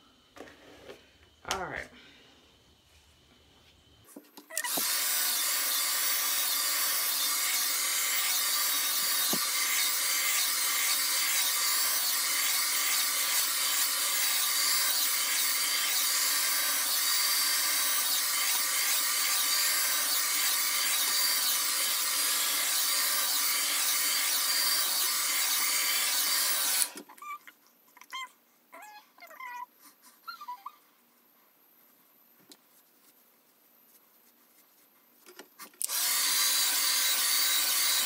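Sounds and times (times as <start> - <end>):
hair dryer running: 4.6 - 15.2, 35.8 - 38.0.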